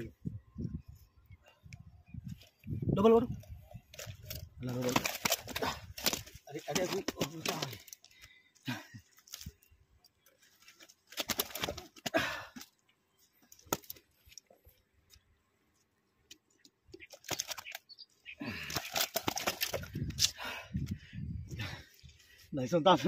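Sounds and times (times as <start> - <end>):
rustling and clicking: 3.4 - 8.3, 16.2 - 17.9.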